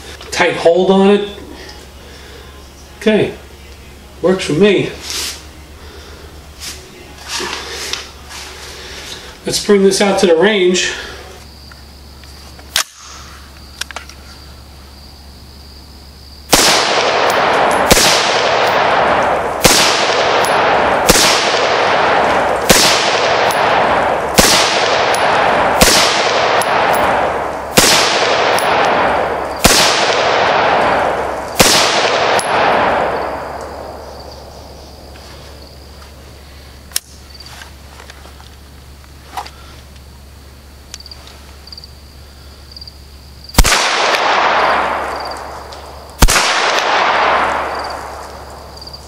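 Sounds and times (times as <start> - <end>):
rifle shots echoing: 16.5 - 35.8, 43.6 - 49.0.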